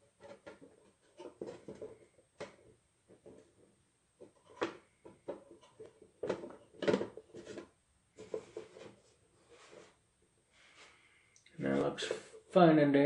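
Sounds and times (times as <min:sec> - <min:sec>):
plastic tubes knocking and scraping: 0:00.0 - 0:10.0.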